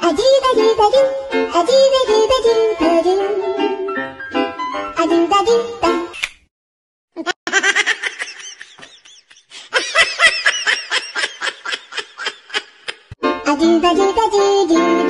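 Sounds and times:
baby giggling: 7.2 - 13.2.

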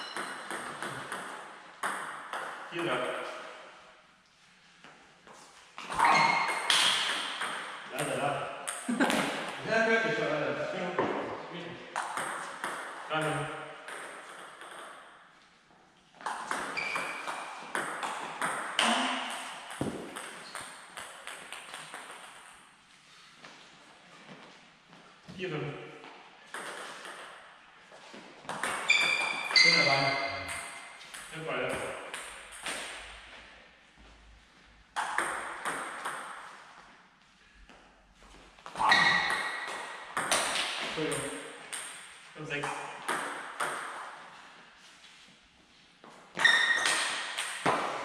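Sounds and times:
ball bouncing on floor: 0.0 - 3.1, 5.8 - 9.6, 11.0 - 11.4, 12.0 - 15.1, 16.2 - 22.6, 26.5 - 27.4, 28.4 - 33.1, 35.0 - 36.5, 38.6 - 44.1, 46.4 - 48.0.

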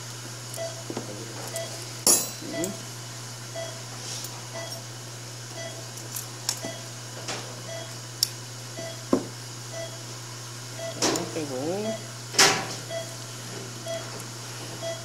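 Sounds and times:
steady low hum: 0.0 - 15.0
patient monitor pulse beeps: 0.6 - 0.8, 1.5 - 1.8, 2.4 - 2.8, 3.5 - 3.8, 4.5 - 4.8, 5.6 - 5.9, 6.6 - 6.9, 7.7 - 8.0, 8.8 - 9.1, 9.7 - 10.0, 10.8 - 12.1, 12.9 - 13.2, 13.8 - 14.2, 14.8 - 15.0.

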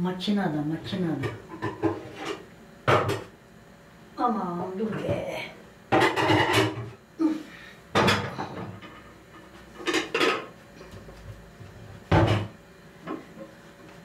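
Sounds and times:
cooking pots clattering: 5.9 - 7.0, 8.0 - 10.6.

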